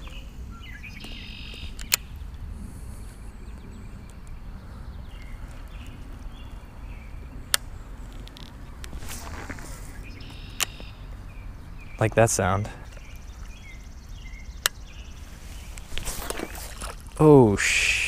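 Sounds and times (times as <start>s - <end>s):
wind rumble on microphone: 0.0s - 10.3s.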